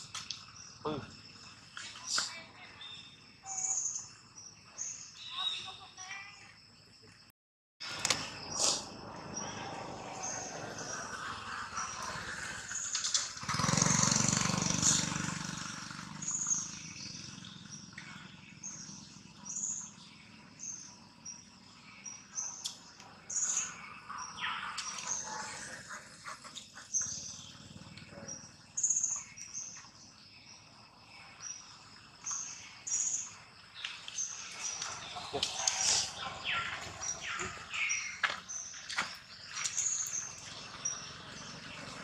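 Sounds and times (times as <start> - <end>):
bird chirping: 0.0 - 7.2, 16.2 - 42.0
forest ambience: 0.0 - 42.0.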